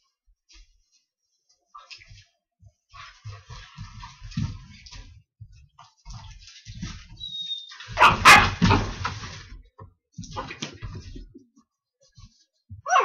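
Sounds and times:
dogs scuffling on carpet: 0.2s - 12.8s
dog barking: 8.0s - 8.9s.

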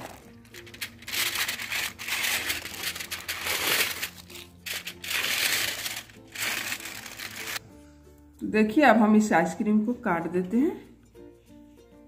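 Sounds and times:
aluminium foil crinkling: 0.0s - 7.6s.

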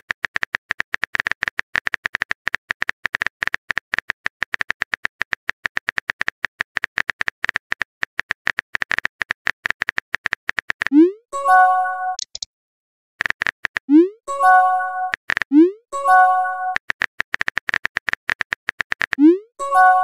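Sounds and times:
phone keyboard key clicks: 12.2s - 12.5s.

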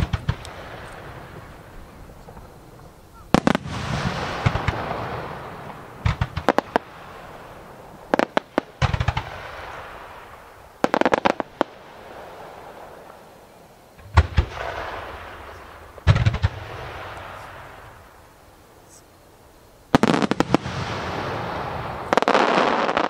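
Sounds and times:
rolling echo: 0.0s - 18.4s
fireworks bursting: 0.0s - 19.1s, 19.7s - 23.0s.

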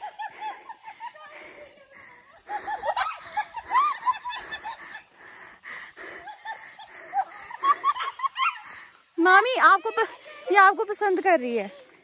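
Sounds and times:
people laughing: 0.0s - 9.0s.

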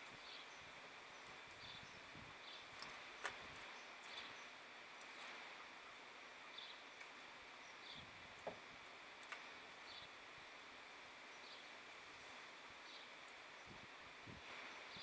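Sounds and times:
faint outdoor hiss: 0.0s - 15.0s
faint clicks: 2.7s - 4.3s, 9.2s - 9.9s.

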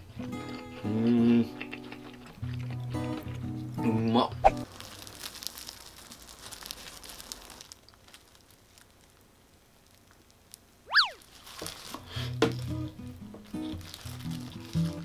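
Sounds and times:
crunching of fried batter being chewed: 0.0s - 15.0s
boing sound effect: 10.9s - 11.2s.

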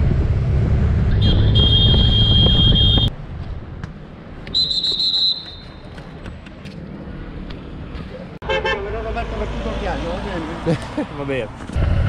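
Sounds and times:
shrill hand whistle blasts: 1.2s - 3.1s, 4.5s - 5.9s.

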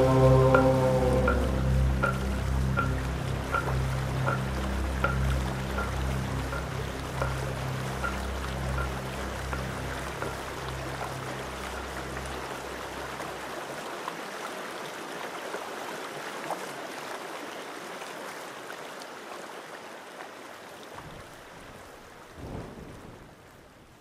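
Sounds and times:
low rumbles: 0.0s - 13.5s
low drone: 0.0s - 13.6s
rushing water: 0.0s - 24.0s.

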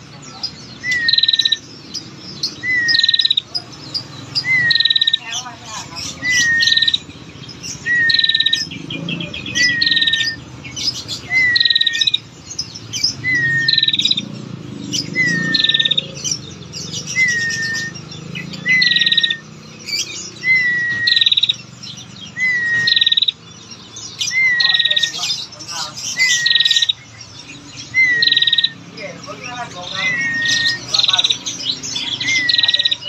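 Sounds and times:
bird whistle and ticking trill: 0.7s - 5.4s, 6.1s - 33.0s.

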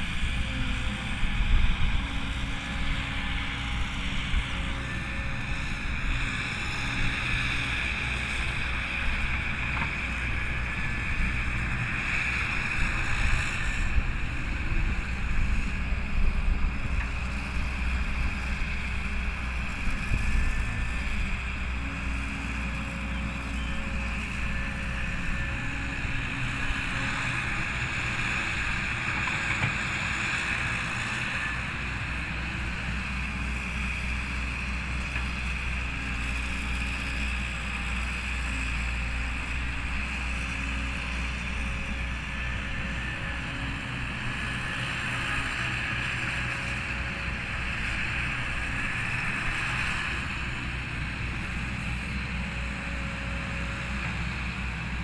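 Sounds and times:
excavator diesel engine rumbling: 0.0s - 55.0s.

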